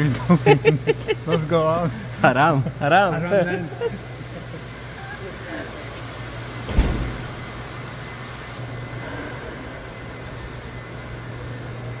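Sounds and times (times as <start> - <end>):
low machinery hum: 0.0 - 12.0
sharp thump: 6.7 - 7.4.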